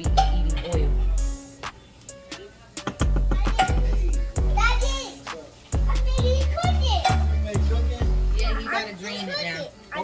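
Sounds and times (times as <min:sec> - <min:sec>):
background music with deep bass: 0:00.0 - 0:09.0.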